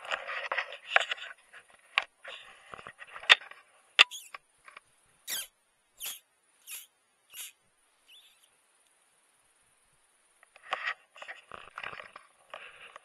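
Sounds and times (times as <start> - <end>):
short high squeaks: 4.0 - 4.4, 5.3 - 8.5.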